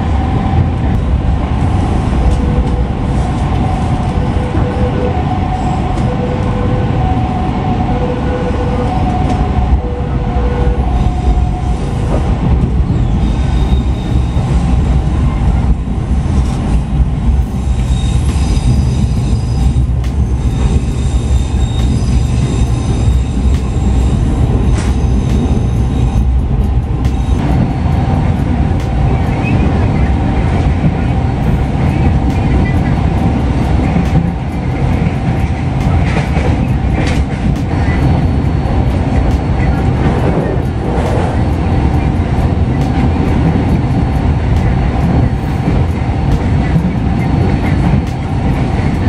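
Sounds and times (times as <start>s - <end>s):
train wheels rumbling on rail: 0.0s - 49.0s
high wheel squeal: 12.9s - 15.4s, 17.4s - 26.4s.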